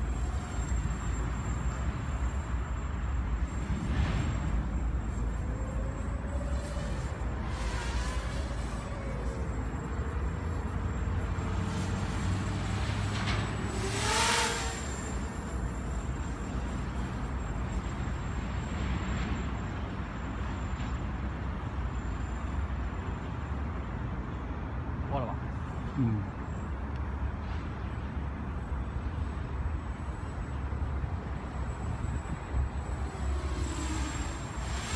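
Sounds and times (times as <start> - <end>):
quadcopter motors whining: 0.0 - 20.7, 28.6 - 34.9.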